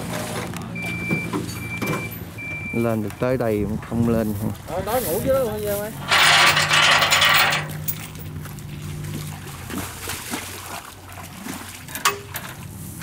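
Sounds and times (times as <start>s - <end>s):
water sloshing and trickling: 0.0s - 13.0s
water splashing loudly: 6.6s - 11.9s.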